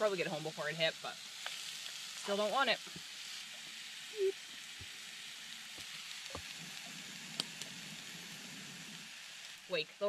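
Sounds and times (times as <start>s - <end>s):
steak sizzling in a frying pan: 0.0s - 10.0s
voice humming: 4.2s - 4.4s.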